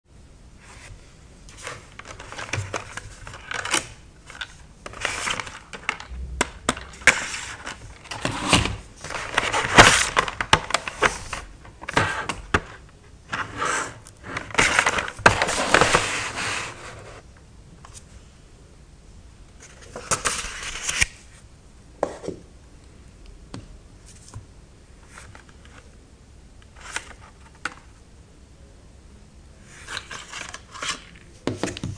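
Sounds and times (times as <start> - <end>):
plastic rubbing and sliding: 0.6 - 17.2.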